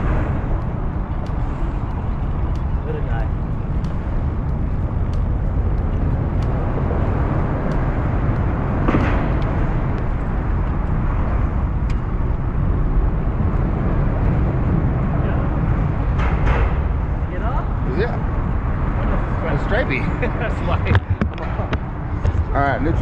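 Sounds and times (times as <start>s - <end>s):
boat engine rumbling: 0.0s - 23.0s
water noise: 0.0s - 23.0s
wind: 0.0s - 23.0s
faint ticks: 0.1s - 11.0s.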